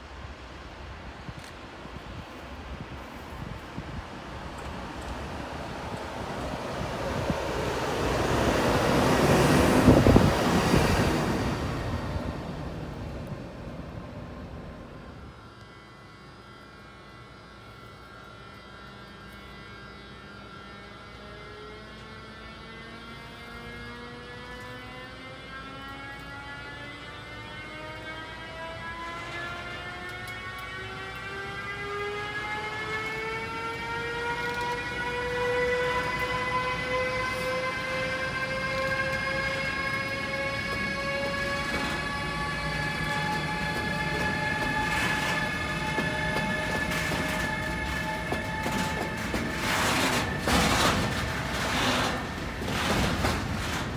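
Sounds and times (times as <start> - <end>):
train rolling noise: 0.0 - 53.9
electric locomotive motors whining: 0.1 - 53.9
train clattering: 36.0 - 53.9.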